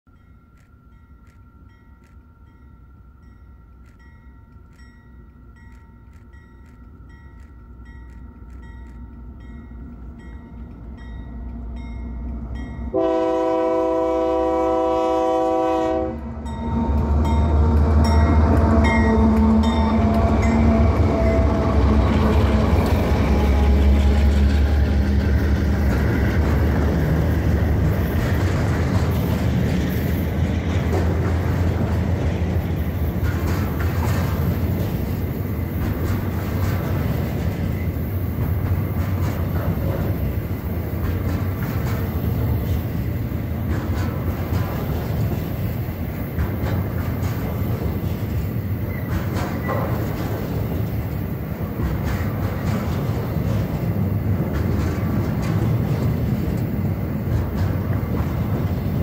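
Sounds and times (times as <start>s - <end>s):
locomotive engine rumble: 0.2s - 59.0s
train wagons rolling: 0.2s - 59.0s
locomotive horn blast: 12.9s - 16.4s.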